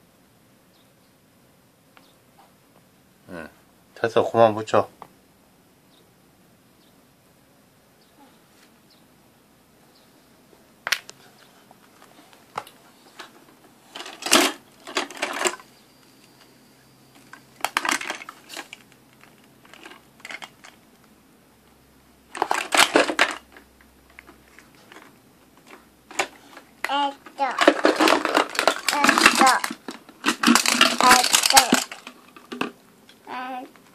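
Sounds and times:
plastic toys clattering: 0:12.6 - 0:15.7, 0:17.2 - 0:20.8, 0:22.3 - 0:32.8.

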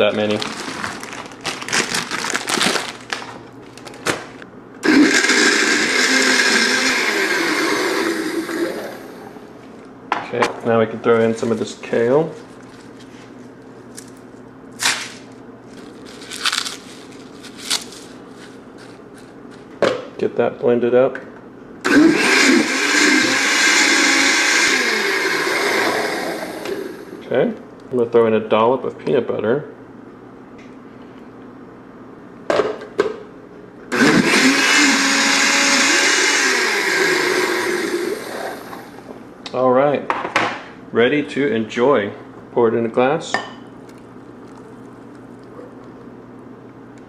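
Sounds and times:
kale leaves crunching: 0:00.1 - 0:04.0, 0:15.7 - 0:19.3
blender running: 0:04.8 - 0:09.4, 0:21.8 - 0:27.2, 0:33.9 - 0:39.1.

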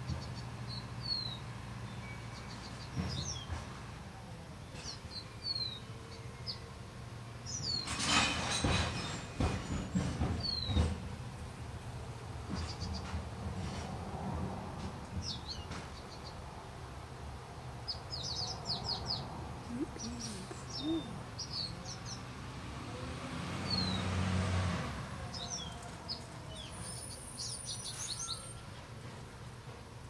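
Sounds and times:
small birds chirping: 0:17.8 - 0:22.6.

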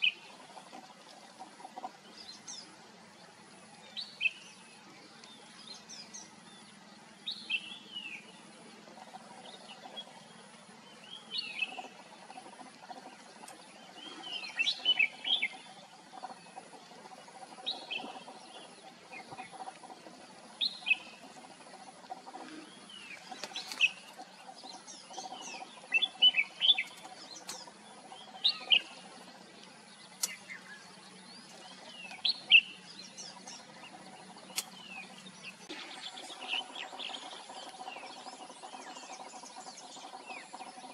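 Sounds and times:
bird whistled song: 0:04.0 - 0:04.6, 0:13.9 - 0:16.4, 0:20.6 - 0:21.2, 0:22.8 - 0:29.2, 0:30.0 - 0:40.9.

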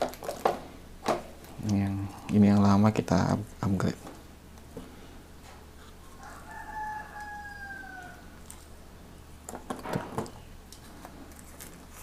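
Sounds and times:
objects rustling and clicking: 0:00.0 - 0:01.6, 0:09.5 - 0:12.0
rooster crowing: 0:06.2 - 0:08.4.

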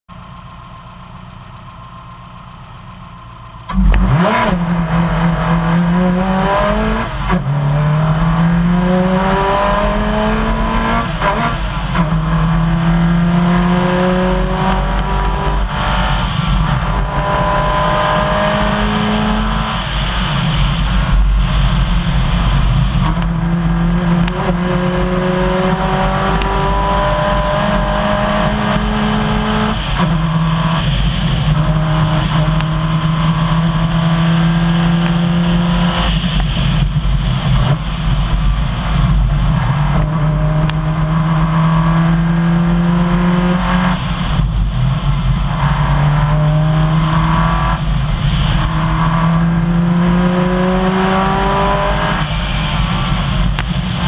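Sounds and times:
rally car engine idling: 0:00.1 - 0:04.1
rally car engine accelerating: 0:02.8 - 0:54.0.

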